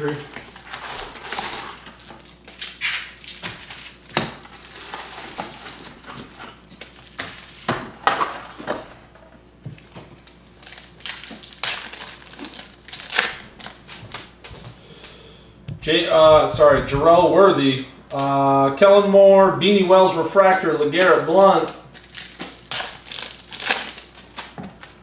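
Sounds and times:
packs torn open: 0.0 - 8.8, 10.2 - 14.4, 21.0 - 25.0
foil wrappers crinkling: 0.0 - 9.2, 9.8 - 15.1, 20.3 - 25.0.

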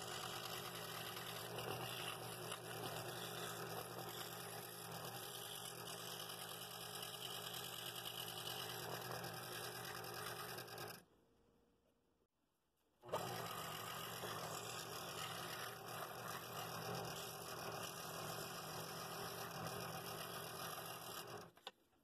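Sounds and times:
scroll saw cutting wood: 0.0 - 11.0, 13.0 - 21.7.

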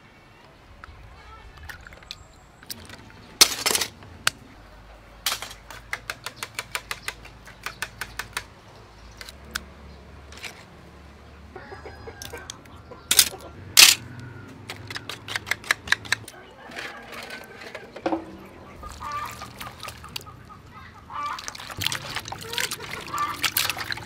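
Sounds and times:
shells clicking and clattering: 2.0 - 4.4, 5.2 - 8.5, 12.2 - 18.3.

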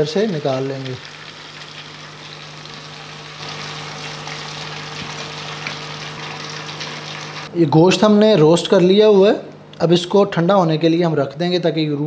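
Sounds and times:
meat deep-frying in oil: 0.0 - 7.5.

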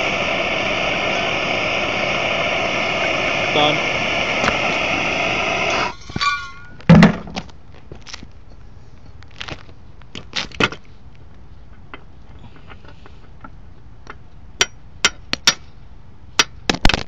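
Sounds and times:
gas torch flame hissing: 0.0 - 6.8
brief squeak: 5.9 - 6.8.

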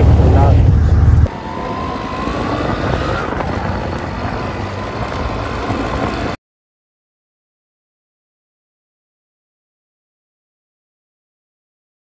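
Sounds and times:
tractor engine running: 0.0 - 6.4.

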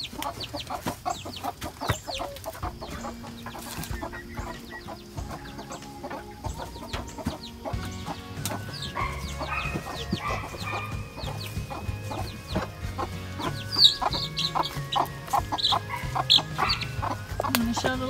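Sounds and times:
chicks cheeping: 0.0 - 18.0
quiet background music: 0.0 - 18.0.

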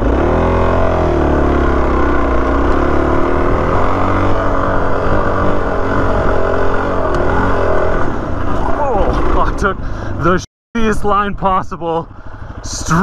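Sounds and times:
motorcycle engine revving under load: 0.0 - 9.6.

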